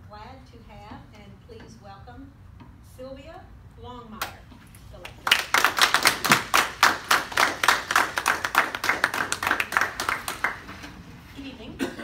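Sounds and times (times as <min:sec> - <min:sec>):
close hand claps: 0:05.0 - 0:10.8
small audience applauding: 0:05.1 - 0:10.9.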